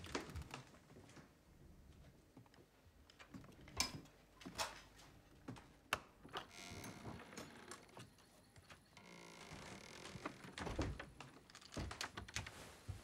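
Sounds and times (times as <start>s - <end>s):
soft rustling: 12.3s - 13.0s.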